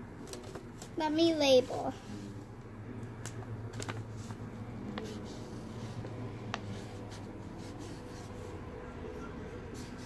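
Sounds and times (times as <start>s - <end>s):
pen scratching on paper: 4.9s - 8.6s, 9.5s - 10.0s.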